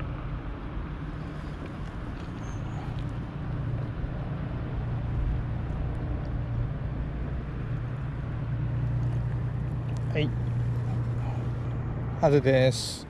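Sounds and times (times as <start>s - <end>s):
distant motor rumbling: 0.0s - 13.0s
outdoor background noise: 0.0s - 13.0s.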